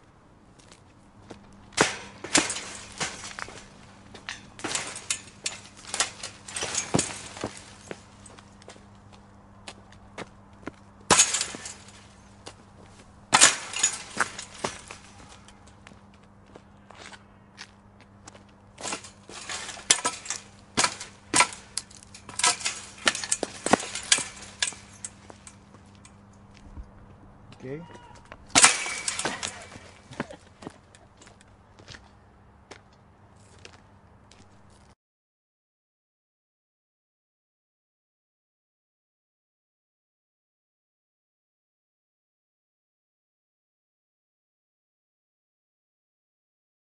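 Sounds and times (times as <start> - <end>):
metal fence rattling: 1.8 - 8.6, 11.1 - 12.5, 13.3 - 15.8, 18.8 - 26.5, 28.4 - 30.4.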